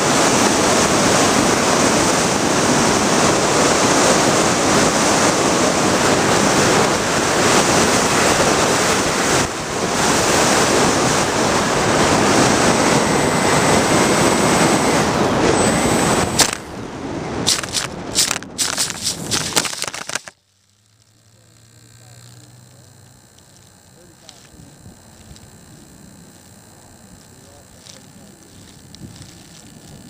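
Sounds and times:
sharp click: 0:16.4 - 0:16.7.

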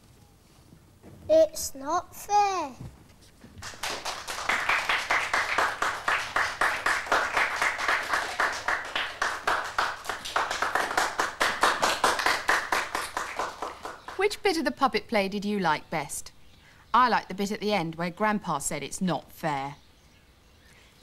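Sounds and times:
small group clapping: 0:03.6 - 0:14.4.

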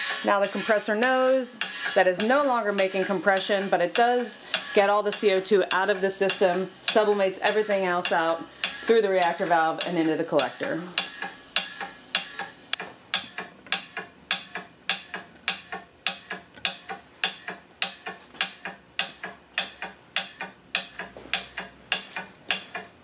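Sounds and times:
compressor mechanical ticking: 0:00.0 - 0:23.0.

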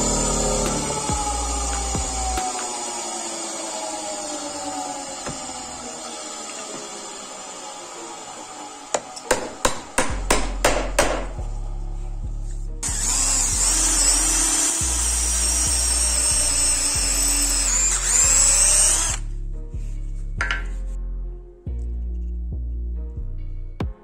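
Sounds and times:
background music with bass: 0:00.0 - 0:02.5, 0:10.0 - 0:24.0
electric drill boring wood: 0:00.0 - 0:10.0, 0:12.8 - 0:19.3.

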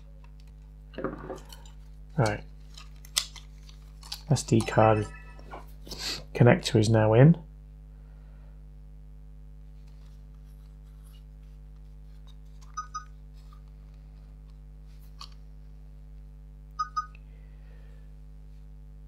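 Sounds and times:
steady low hum: 0:00.0 - 0:19.0
camcorder double beeps: 0:16.8 - 0:17.1.

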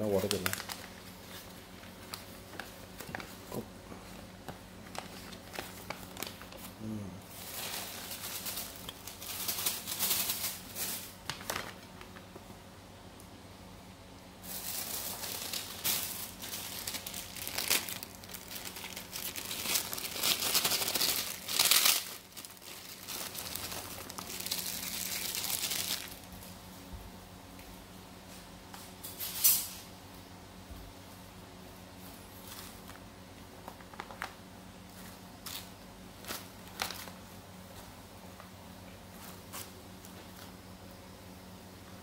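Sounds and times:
food wrapping crinkling: 0:00.0 - 0:12.5, 0:14.4 - 0:26.5, 0:32.4 - 0:40.6.

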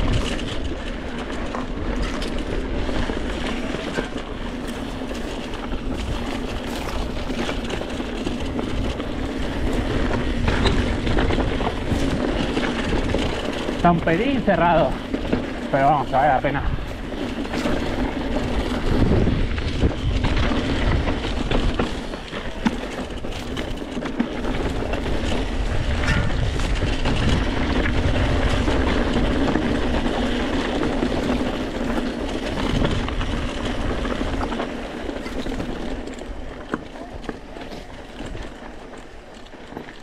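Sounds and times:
bike rattling and knocking: 0:00.0 - 0:40.0
tyres crunching over stones: 0:00.0 - 0:40.0
wind rumbling on microphone: 0:00.0 - 0:40.0.

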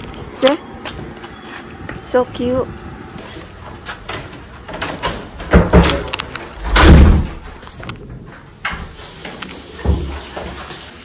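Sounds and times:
door heavy thud: 0:04.7 - 0:07.6.

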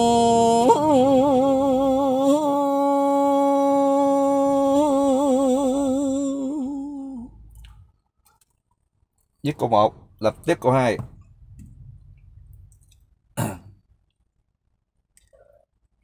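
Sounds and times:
man singing a cappella: 0:00.0 - 0:07.4.

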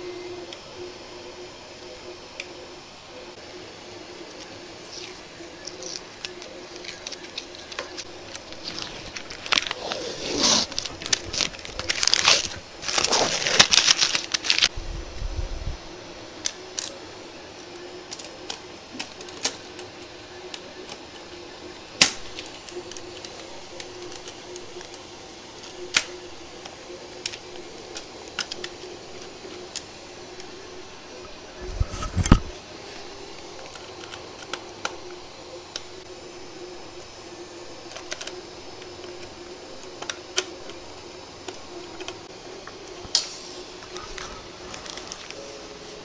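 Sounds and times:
faint steady hum: 0:00.0 - 0:46.0
cardboard rasping and scraping: 0:08.3 - 0:14.0.

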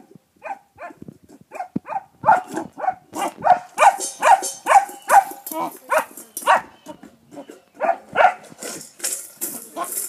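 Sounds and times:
puppy barking: 0:00.4 - 0:06.8, 0:07.4 - 0:08.5.

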